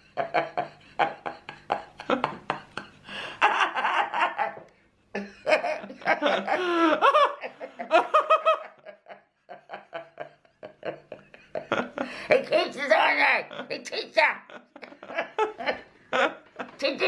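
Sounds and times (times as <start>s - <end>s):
woman laughing: 5.2s - 17.0s.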